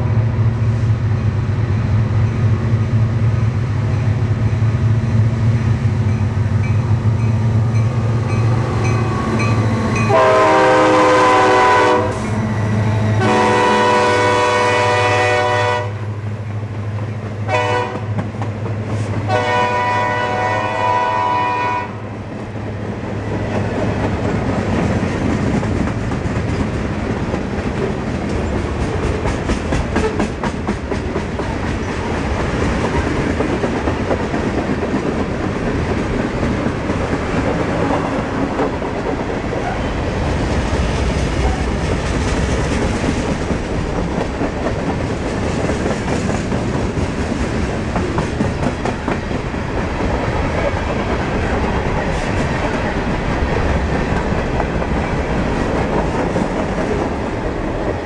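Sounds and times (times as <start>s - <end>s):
diesel locomotive engines running: 0.0s - 58.0s
train air horn: 8.8s - 12.4s, 13.2s - 16.1s, 17.4s - 18.2s, 19.3s - 22.1s
train wheels clattering on rails: 16.5s - 20.6s, 22.3s - 58.0s.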